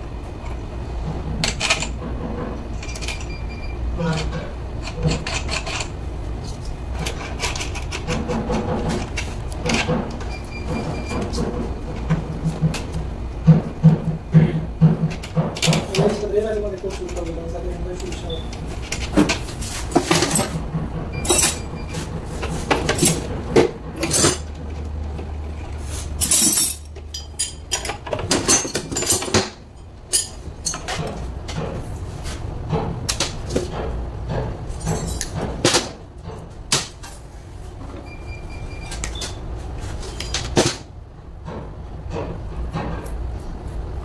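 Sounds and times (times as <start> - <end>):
hand tools clicking and clinking: 26.2 - 31.6.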